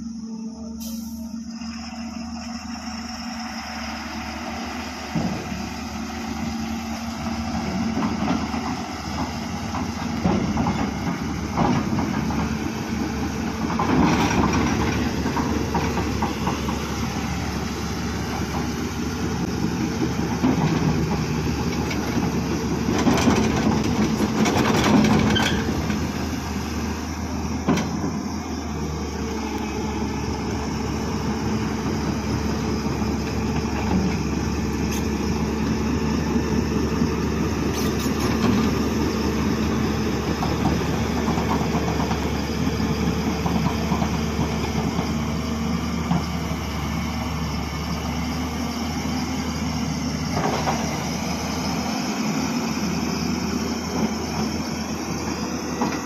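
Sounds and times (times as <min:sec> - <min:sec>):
diesel engines droning: 0:00.0 - 0:56.0.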